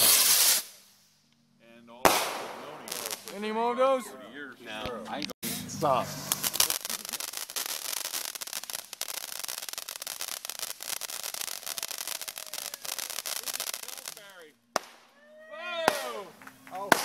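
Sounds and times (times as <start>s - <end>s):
firework fountain hissing and crackling: 0.0s - 1.2s, 2.1s - 3.5s, 5.4s - 15.1s.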